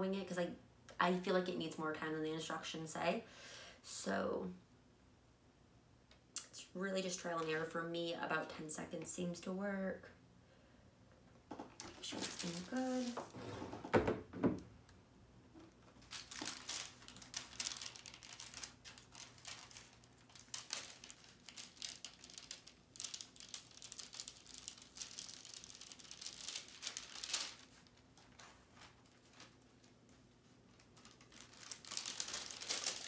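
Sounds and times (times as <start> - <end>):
wax paper crinkling: 11.7 - 13.4, 15.6 - 33.0.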